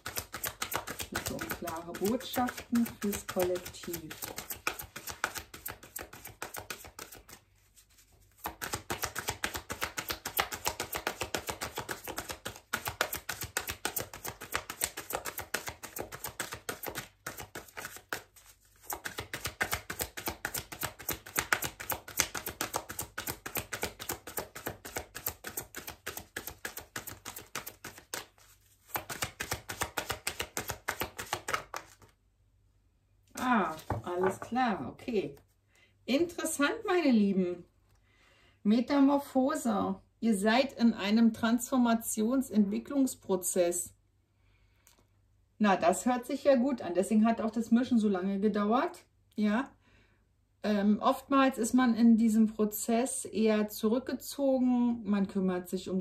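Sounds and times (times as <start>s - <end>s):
cards being shuffled: 0.0s - 32.2s, 33.4s - 34.5s.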